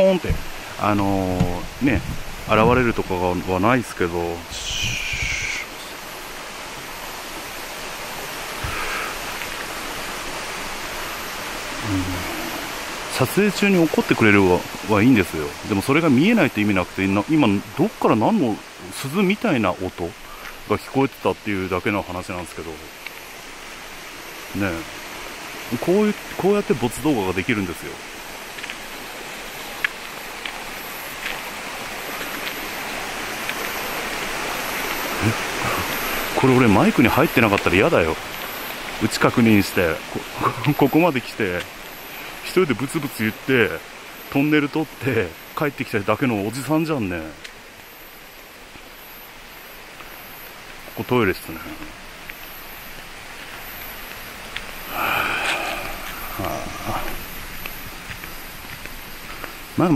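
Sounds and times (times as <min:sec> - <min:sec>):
steady rushing noise: 0:00.0 - 0:18.4
stream water rushing: 0:00.0 - 0:59.9.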